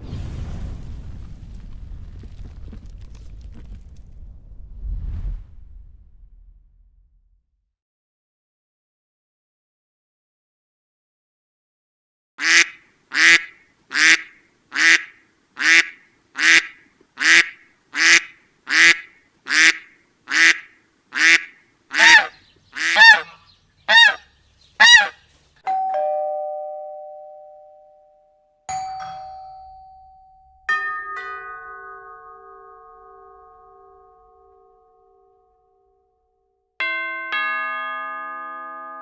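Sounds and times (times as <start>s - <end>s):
bell-like chimes ringing: 25.7s - 35.4s, 36.8s - 39.0s.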